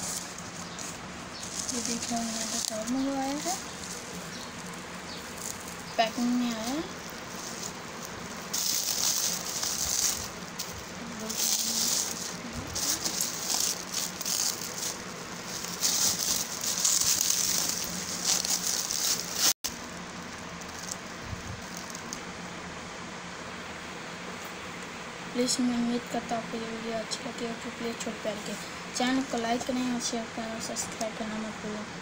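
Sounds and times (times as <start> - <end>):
bubble wrap crinkling: 0.0 - 22.2.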